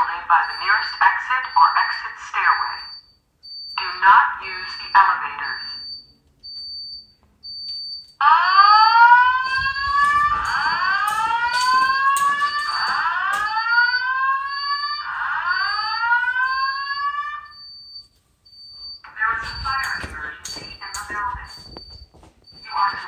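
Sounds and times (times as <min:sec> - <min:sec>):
spoken announcements: 0:00.0 - 0:03.0, 0:03.8 - 0:05.9, 0:09.5 - 0:16.8, 0:19.0 - 0:21.9, 0:22.6 - 0:23.0
fire alarm whoop tone: 0:00.0 - 0:04.0, 0:04.6 - 0:23.0.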